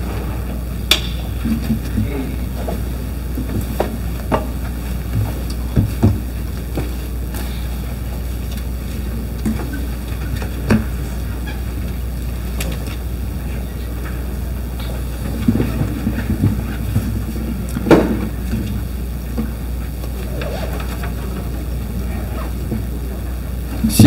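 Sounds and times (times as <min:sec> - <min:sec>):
microphone hum: 0:00.0 - 0:24.0.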